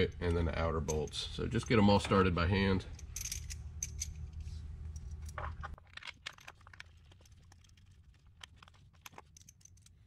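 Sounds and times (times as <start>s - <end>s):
low background hum: 0.0s - 10.0s
metal bolts clicking: 2.9s - 4.2s.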